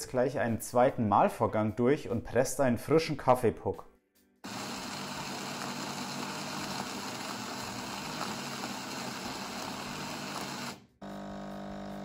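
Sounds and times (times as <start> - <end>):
coffee grinder grinding beans: 4.5 - 12.0.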